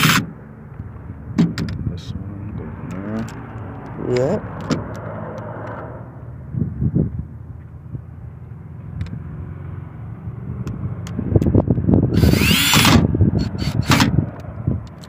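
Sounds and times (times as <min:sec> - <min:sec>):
cordless drill driving screws: 0:00.0 - 0:00.2, 0:12.2 - 0:14.1.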